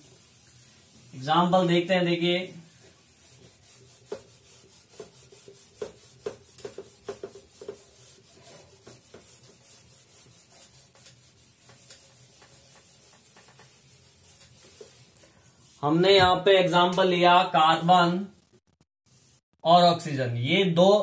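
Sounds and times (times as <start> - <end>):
eraser rubbing on whiteboard: 0.0 - 15.9.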